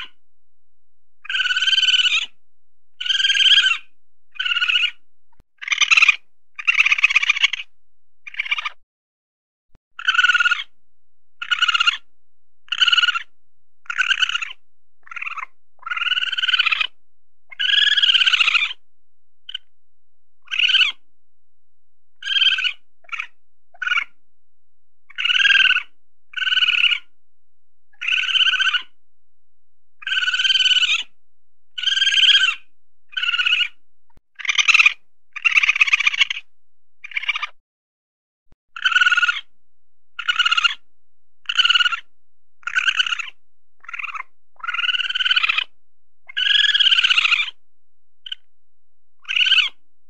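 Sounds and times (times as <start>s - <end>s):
weasel calling: 0.0s - 0.2s, 1.2s - 2.4s, 3.0s - 5.0s, 5.6s - 8.8s, 10.0s - 10.8s, 11.4s - 18.8s, 19.5s - 19.7s, 20.4s - 21.0s, 22.2s - 24.2s, 25.1s - 27.2s, 27.9s - 29.0s, 30.0s - 33.8s, 34.4s - 37.6s, 38.7s - 47.6s, 48.2s - 48.5s, 49.2s - 49.8s.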